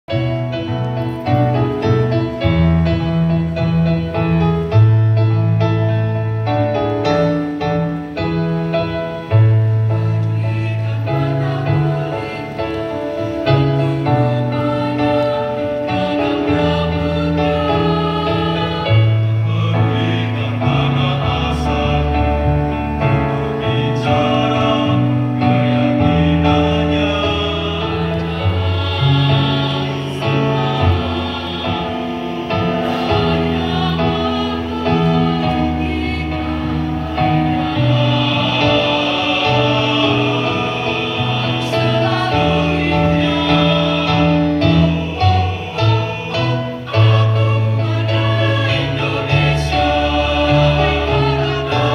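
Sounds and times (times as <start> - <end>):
mixed choir singing in harmony: 0.1 - 51.9.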